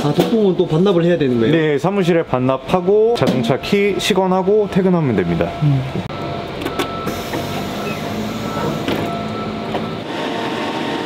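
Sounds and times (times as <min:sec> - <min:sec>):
electric bus hum: 0:02.6 - 0:11.0.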